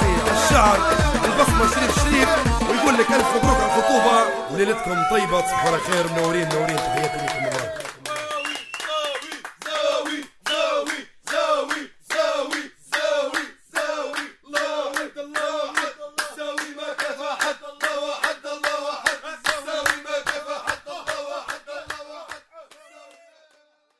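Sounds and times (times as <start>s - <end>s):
hands clapping in rhythm: 0.0s - 3.6s, 5.5s - 23.6s
voices: 0.0s - 8.6s.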